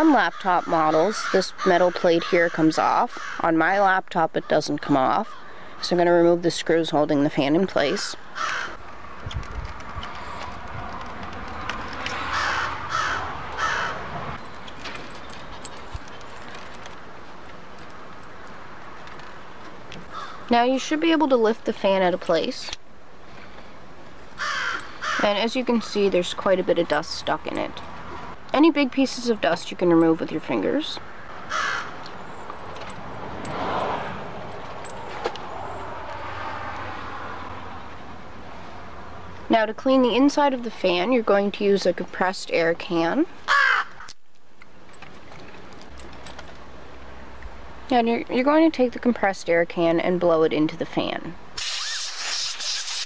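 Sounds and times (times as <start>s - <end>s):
outdoor background noise: 0.0s - 53.0s
bird cawing: 0.2s - 3.4s, 8.2s - 8.8s, 12.2s - 14.1s, 20.0s - 20.5s, 24.4s - 25.3s, 31.4s - 32.4s, 43.5s - 44.1s.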